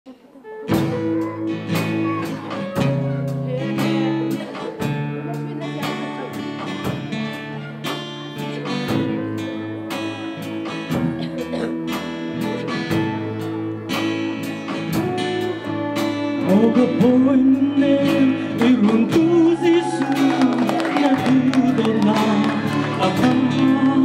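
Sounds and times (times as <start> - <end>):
electric guitar: 0.1 - 24.0
live band music: 0.1 - 24.0
strummed acoustic guitar: 0.7 - 24.0
man singing: 16.2 - 24.0.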